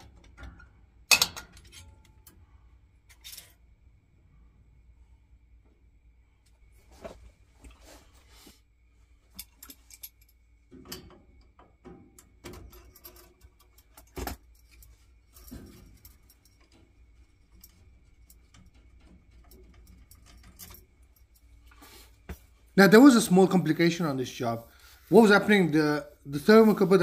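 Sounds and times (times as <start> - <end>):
hand tools clicking and clinking: 9.3 - 11.6, 12.2 - 22.0.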